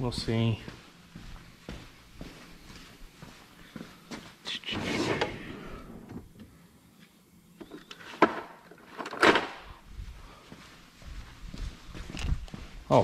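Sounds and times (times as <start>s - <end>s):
metal drawer sliding: 4.7s - 6.3s.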